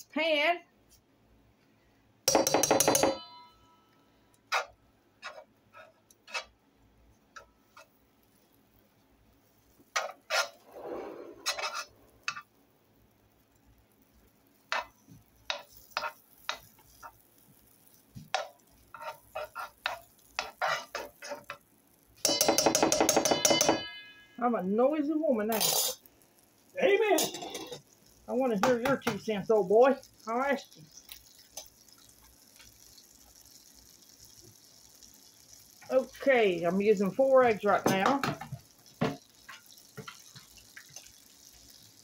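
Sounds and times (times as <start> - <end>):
butter sizzling: 2.2 - 3.4, 4.3 - 42.0
ringing knock: 2.3 - 3.6, 22.3 - 24.2
utensil scraping skillet: 4.5 - 6.6, 7.4 - 8.5, 9.6 - 12.5, 14.5 - 24.4, 25.3 - 42.0.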